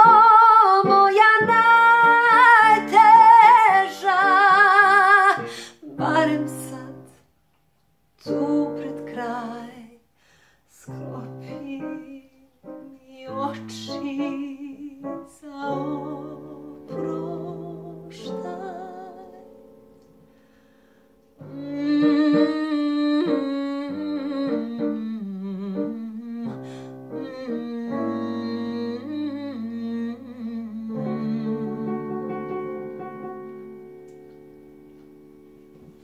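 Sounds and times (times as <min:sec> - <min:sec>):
piano: 0:00.0 - 0:07.6, 0:08.2 - 0:36.0
woman humming: 0:21.4 - 0:32.3.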